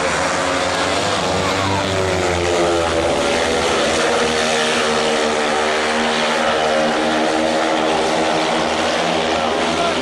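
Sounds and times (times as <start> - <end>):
motorcycles racing at high revs: 0.0 - 10.0.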